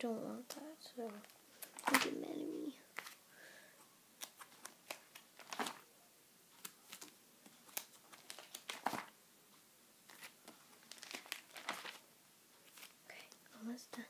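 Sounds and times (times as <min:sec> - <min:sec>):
plastic sheets crinkling: 0:01.0 - 0:02.2, 0:02.9 - 0:03.2, 0:04.2 - 0:05.9, 0:06.5 - 0:09.2, 0:10.1 - 0:13.4.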